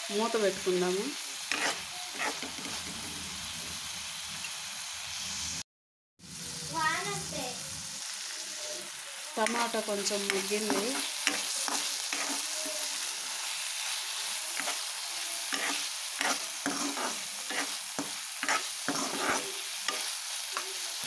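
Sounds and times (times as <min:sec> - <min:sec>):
vegetables sizzling in oil: 0:00.0 - 0:05.6, 0:06.2 - 0:21.0
spoon scraping and clicking on pan: 0:01.5 - 0:02.8, 0:10.3 - 0:12.4, 0:15.5 - 0:20.7.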